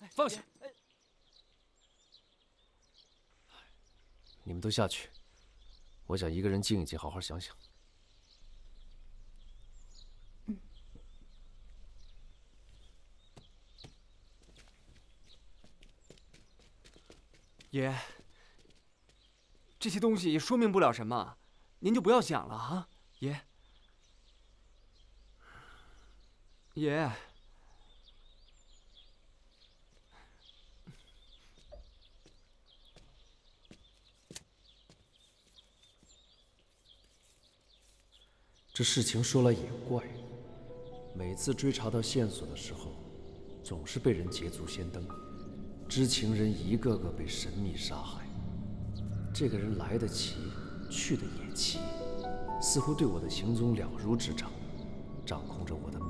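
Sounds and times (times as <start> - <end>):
faint bird chirps: 0.0 - 56.0
footfalls on dirt ground: 12.7 - 19.4, 31.5 - 38.2.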